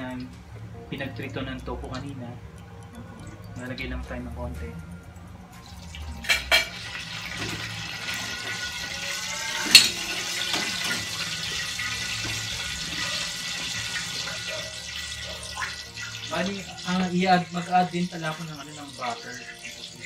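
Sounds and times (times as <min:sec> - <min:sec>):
oil sizzling in a frying pan: 0:05.7 - 0:20.0.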